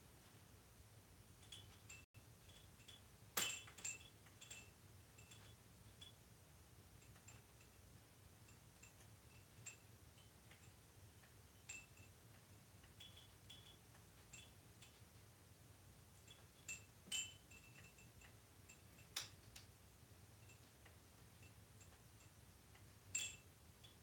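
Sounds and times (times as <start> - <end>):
rattle bell tinkling: 1.4 - 6.2, 11.4 - 15.0, 16.2 - 19.2, 23.0 - 24.0.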